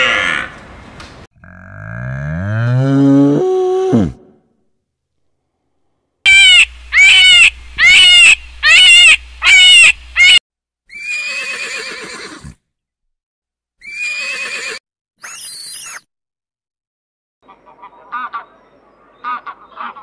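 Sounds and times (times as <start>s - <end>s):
horses neighing: 11.0s - 12.6s.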